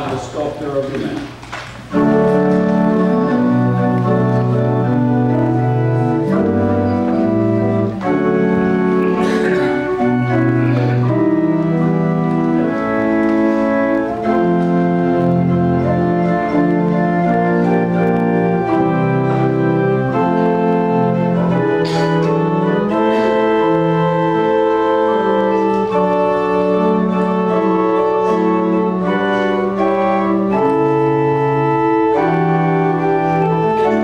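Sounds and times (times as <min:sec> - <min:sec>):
organ playing slow chords: 0:01.8 - 0:34.0.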